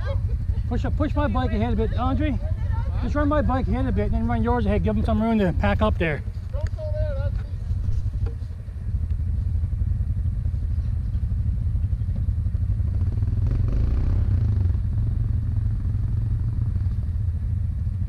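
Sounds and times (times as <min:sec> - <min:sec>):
atv engines running: 0:00.0 - 0:18.0.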